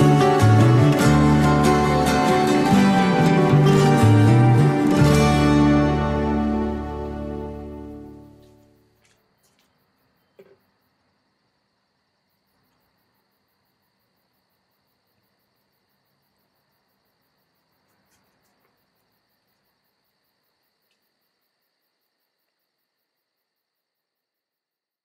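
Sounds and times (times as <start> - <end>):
crickets chirping: 0.0 - 25.0
small rustle: 17.8 - 19.7.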